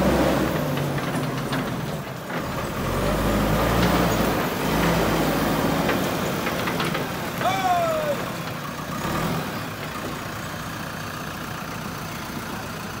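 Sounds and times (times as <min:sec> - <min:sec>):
backhoe diesel engine running: 0:00.0 - 0:13.0.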